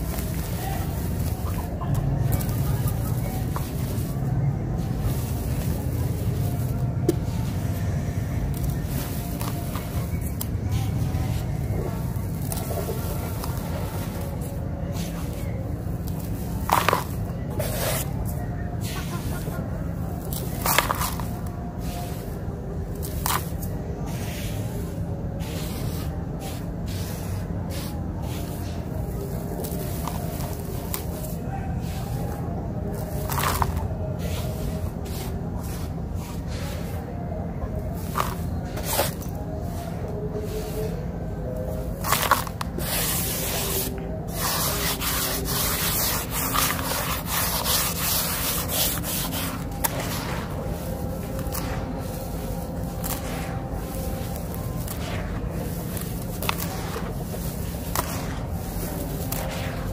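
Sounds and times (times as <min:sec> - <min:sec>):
hands crunching gritty sand: 0:00.0 - 0:37.0, 0:41.6 - 0:59.9
sand trickling into plastic basin: 0:41.7 - 0:59.9.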